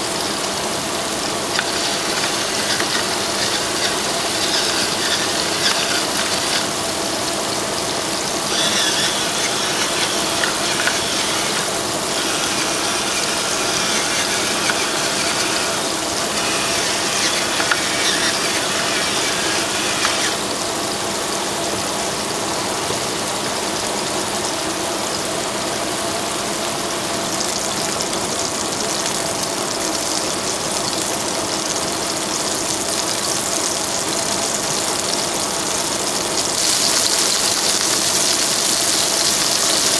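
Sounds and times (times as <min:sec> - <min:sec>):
meat sizzling in a frying pan: 0:00.0 - 0:22.4, 0:27.1 - 0:39.9
pepper grinder grinding: 0:01.4 - 0:06.9, 0:08.4 - 0:20.6, 0:36.6 - 0:39.9.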